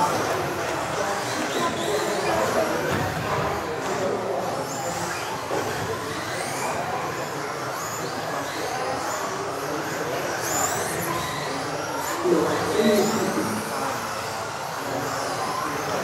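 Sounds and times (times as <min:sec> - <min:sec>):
electric motors whining: 0:00.0 - 0:16.0.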